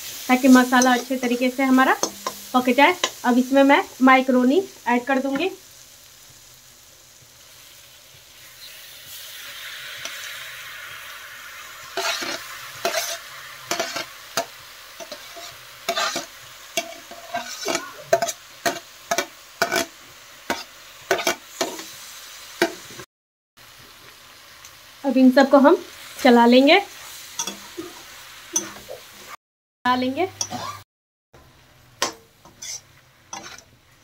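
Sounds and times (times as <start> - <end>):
food sizzling in a pan: 0.0 - 34.0
utensil scraping iron pan: 12.0 - 14.1, 15.0 - 19.9, 30.4 - 30.8, 32.0 - 33.7.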